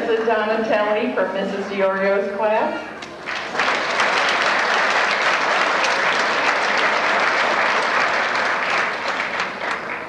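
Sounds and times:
audience applause: 3.2 - 10.0.

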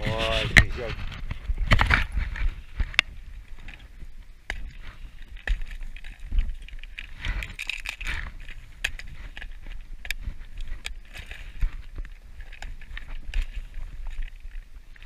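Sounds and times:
lures rattling in box: 5.2 - 14.7.

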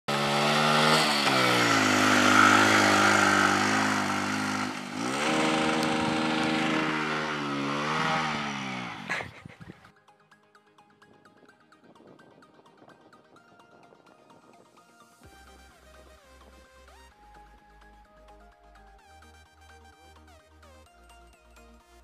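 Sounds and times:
motorcycle engine labouring: 0.0 - 9.9.

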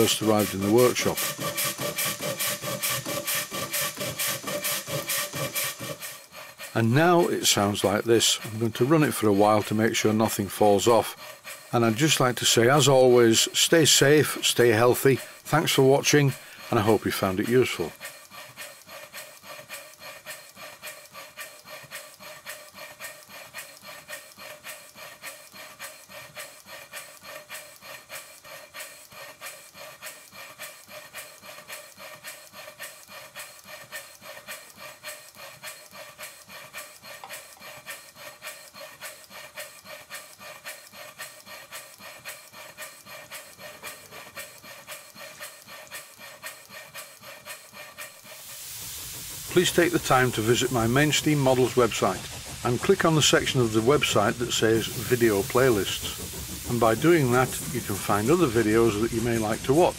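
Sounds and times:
model steam engine exhaust beating: 0.0 - 59.9.

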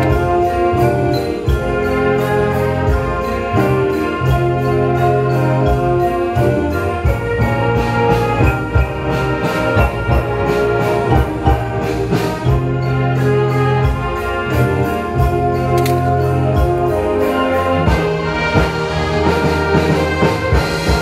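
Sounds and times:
brass chords: 0.0 - 21.0
steady drum beat: 0.0 - 21.0.

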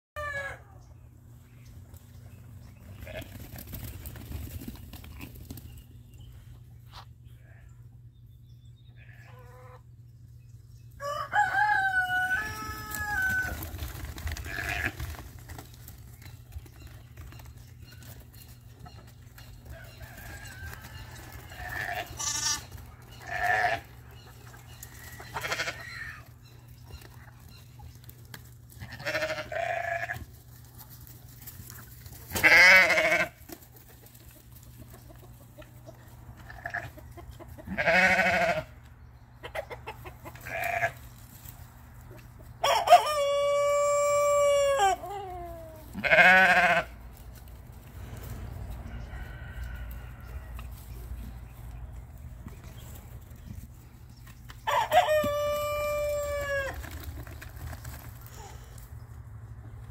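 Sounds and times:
rooster crowing: 0.2 - 0.7, 11.0 - 13.7, 42.6 - 45.2, 48.9 - 50.6, 54.6 - 56.8
sheep bleating: 14.4 - 14.9, 21.5 - 23.9, 25.3 - 26.1, 28.8 - 30.2, 32.4 - 33.4, 37.7 - 38.7, 40.5 - 41.0, 45.9 - 47.0.

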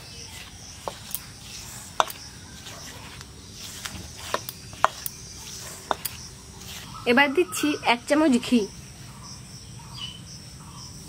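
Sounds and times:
hand rustling flour in bowl: 0.0 - 7.1.

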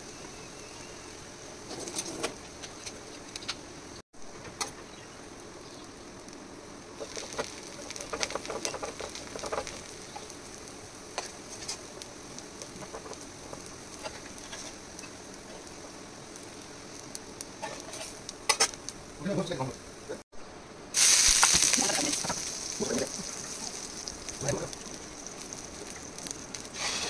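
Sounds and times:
dosa sizzling on a pan: 0.0 - 20.2, 20.9 - 27.0
metal spatula scraping a pan: 17.6 - 18.8, 26.8 - 27.0.

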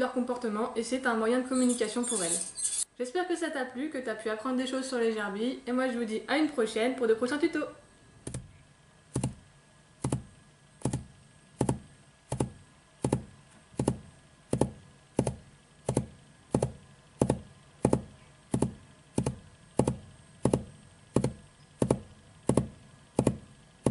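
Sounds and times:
sharp knocks: 10.0 - 23.9.

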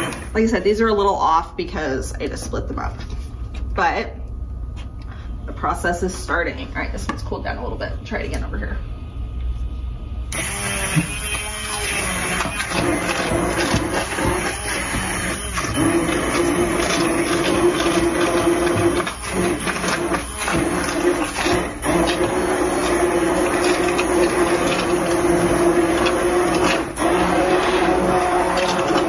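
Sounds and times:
immersion blender motor humming: 0.0 - 0.3, 10.3 - 29.0.

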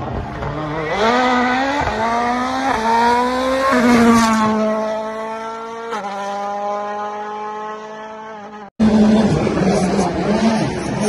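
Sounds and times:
rally car engine at high revs: 0.0 - 11.0.

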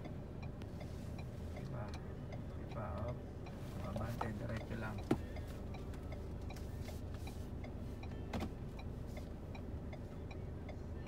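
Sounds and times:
car cabin engine hum: 0.0 - 11.0
electronic ticking: 7.6 - 10.8.

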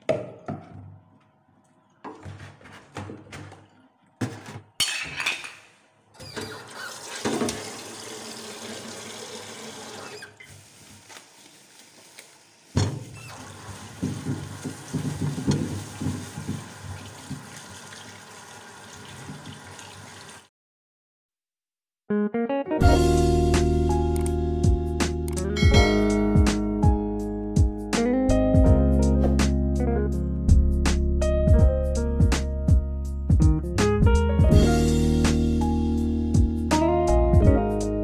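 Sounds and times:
tap water splashing into sink: 12.8 - 20.4.

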